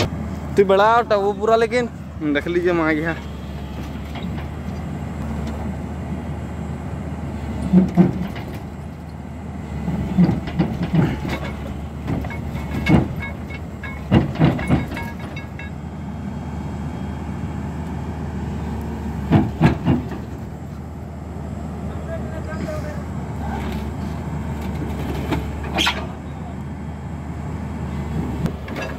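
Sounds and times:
excavator diesel engine running: 0.0 - 28.9
metallic clanks and knocks: 3.2 - 5.6, 7.6 - 9.2, 10.2 - 15.8, 19.3 - 20.5, 24.6 - 26.2, 28.4 - 28.9.

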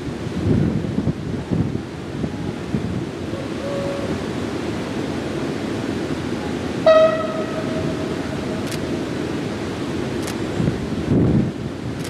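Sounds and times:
locomotive horn: 3.4 - 4.2, 6.8 - 8.6.

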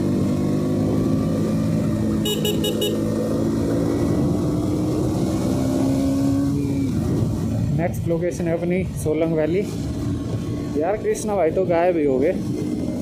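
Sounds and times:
motorcycle engine running: 0.0 - 5.2
horn beeping: 2.2 - 3.2.

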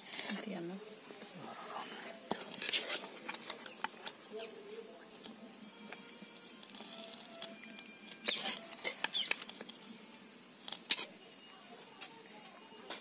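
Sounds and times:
metal spatula scraping steel plate: 2.4 - 4.1.

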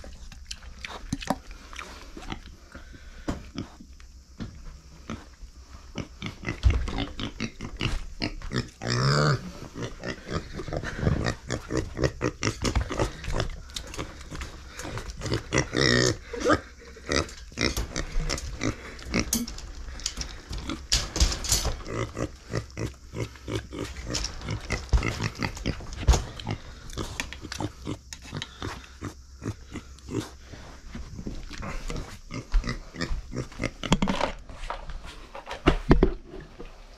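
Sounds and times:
pig grunting: 6.0 - 30.5, 31.5 - 34.2
pig squealing: 14.8 - 18.8.

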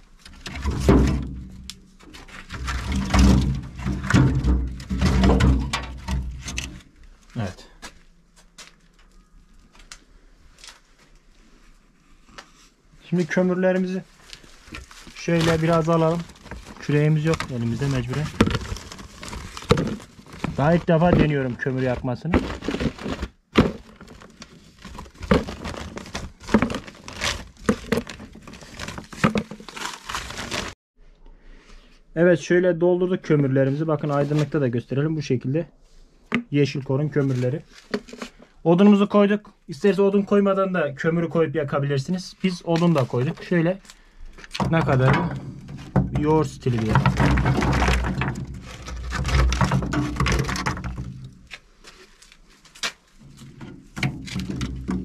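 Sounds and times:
coal clattering: 0.1 - 7.8, 13.1 - 30.8, 42.4 - 55.0
plastic sack rustling: 13.2 - 30.8, 42.4 - 55.0.

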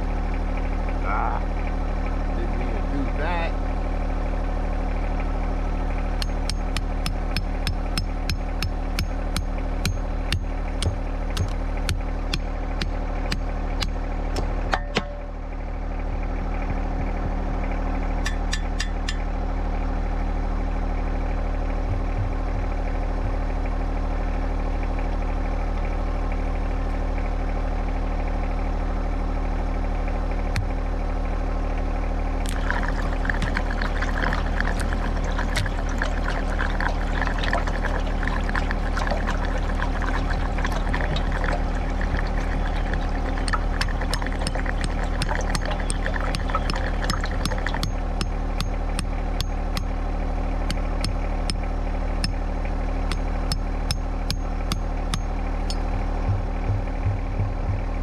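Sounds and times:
diesel engine idling: 0.0 - 58.0
dense crackling noise: 32.4 - 48.4.

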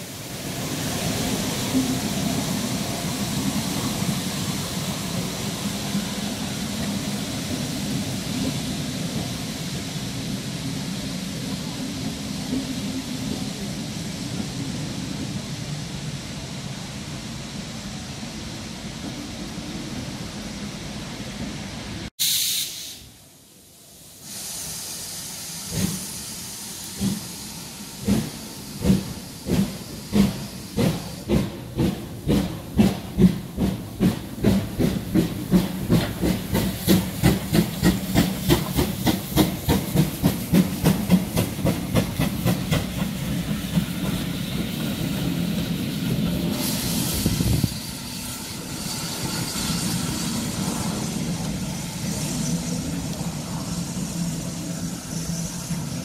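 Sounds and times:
steam hissing: 0.0 - 56.0
train coaches rumbling past: 0.0 - 56.0
steam locomotive exhaust chuffs: 24.2 - 56.0.

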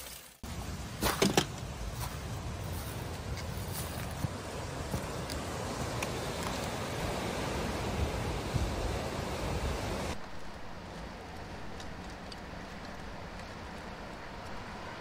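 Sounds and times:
wind: 0.0 - 15.0
sea surf: 2.5 - 10.2.

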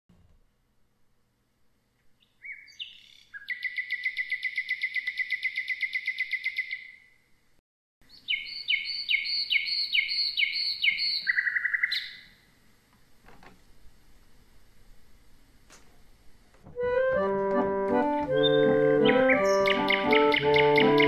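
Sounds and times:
nightingale singing: 2.2 - 7.2, 8.0 - 12.4, 18.3 - 21.0.

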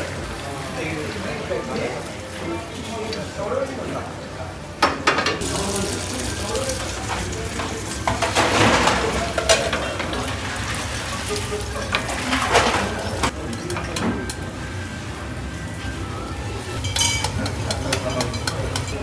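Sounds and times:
food frying in hot oil: 5.4 - 15.1, 16.6 - 19.0
light clinks of utensils: 16.8 - 19.0.

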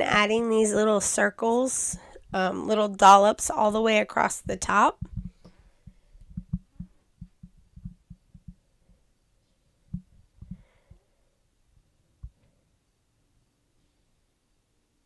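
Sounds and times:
faint low thumps and knocks: 4.5 - 9.0, 9.8 - 10.9.

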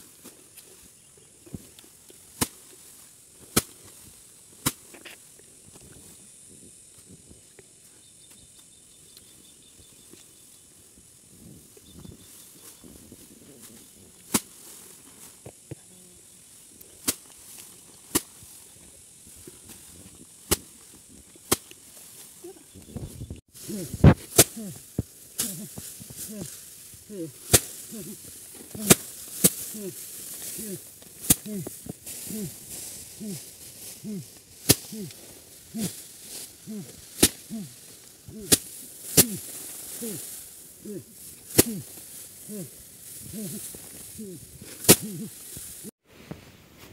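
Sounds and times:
dry straw rustling: 0.0 - 46.9
faint steady hiss: 0.0 - 46.9
rice stalks whacked on mat: 1.5 - 5.2, 12.3 - 15.6, 16.5 - 18.7, 19.3 - 22.4, 23.0 - 45.9.

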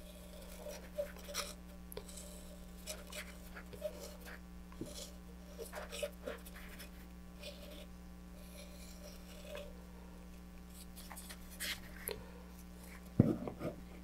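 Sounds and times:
stick scraping epoxy in tube: 0.0 - 9.7, 10.7 - 12.1.

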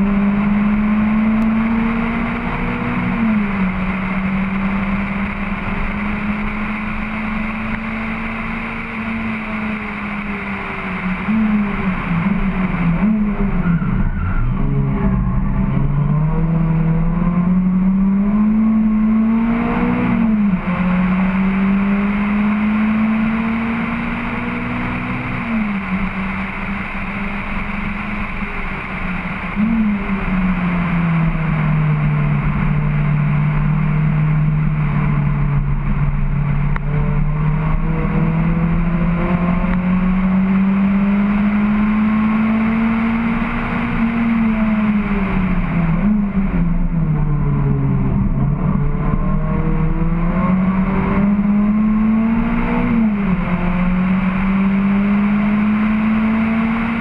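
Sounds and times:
car engine at full throttle: 0.0 - 57.0.

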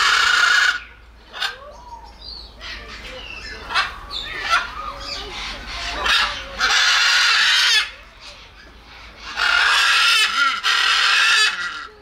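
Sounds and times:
macaw harsh calls: 0.0 - 1.8, 2.6 - 12.0.

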